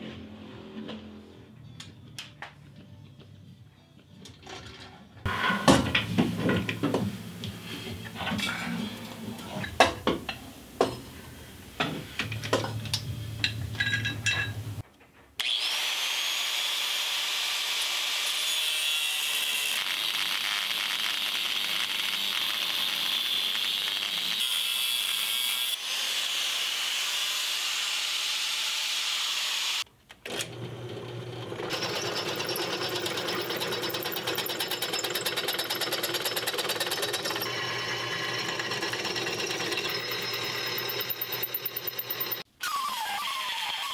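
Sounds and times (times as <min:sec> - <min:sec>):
metal clanks and knocks: 0:04.4 - 0:07.2
angle grinder grinding metal: 0:15.4 - 0:28.0, 0:31.4 - 0:42.5
drill press motor drilling: 0:30.3 - 0:42.4.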